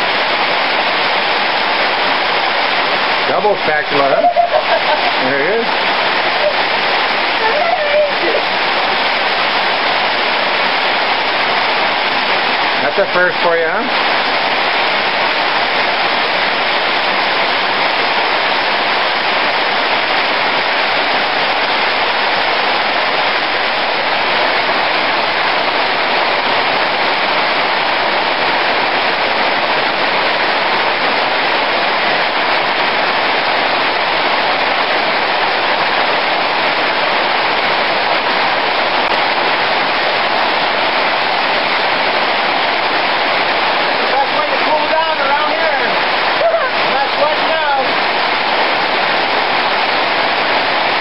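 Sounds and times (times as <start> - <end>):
heavy rain pouring: 0.0 - 51.0.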